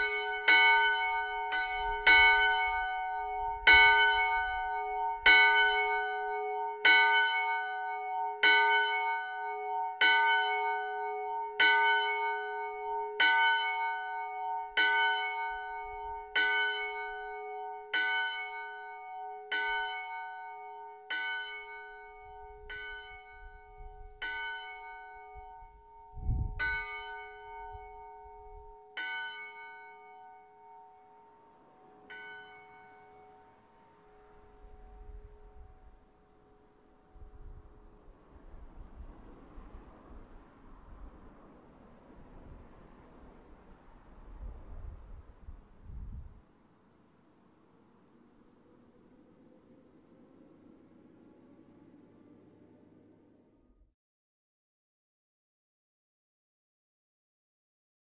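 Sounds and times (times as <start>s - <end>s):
church bell ringing: 0.0s - 38.2s.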